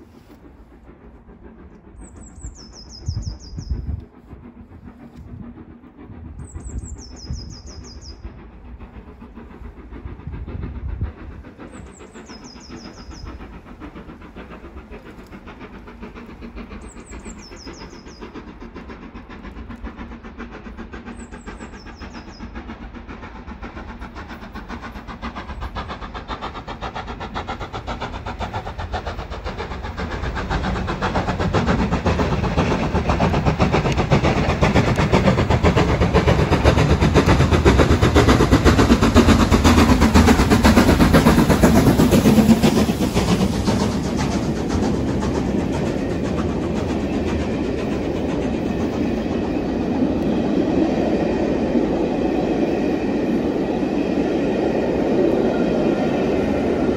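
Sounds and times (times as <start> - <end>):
steam locomotive exhaust beats: 0.0 - 56.9
small bird singing: 2.0 - 3.8, 6.4 - 8.2, 11.7 - 13.4, 16.7 - 18.3
wind gusts on microphone: 3.0 - 7.7.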